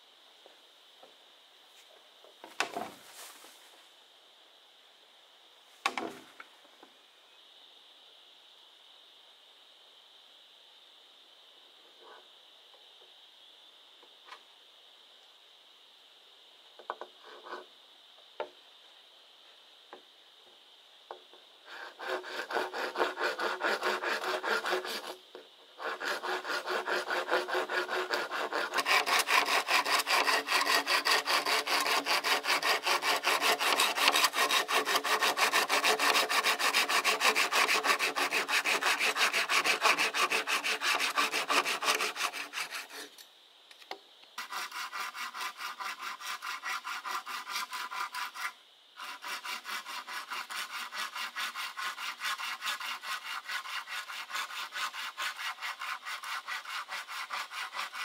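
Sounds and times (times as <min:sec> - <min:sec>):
hand saw cutting: 0:21.7 - 0:25.2, 0:25.8 - 0:43.2, 0:44.4 - 0:58.0.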